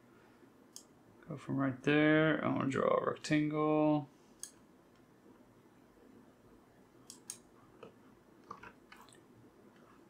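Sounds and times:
computer mouse clicks: 7.0s - 9.2s.

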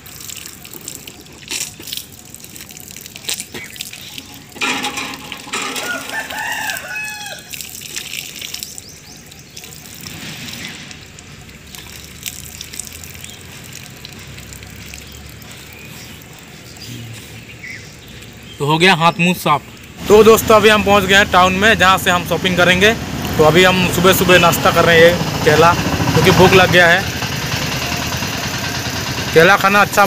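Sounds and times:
water pouring and splashing: 0.0s - 30.0s
rooster crowing: 5.5s - 7.6s.

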